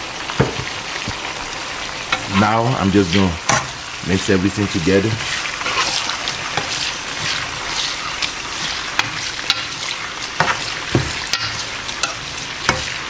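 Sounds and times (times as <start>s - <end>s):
chicken sizzling in hot oil: 0.0s - 13.0s
spoon scraping a pan: 5.2s - 13.0s.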